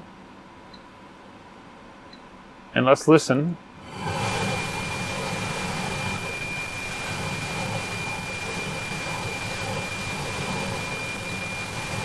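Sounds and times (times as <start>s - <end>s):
high radio tone in hiss: 3.8s - 12.0s.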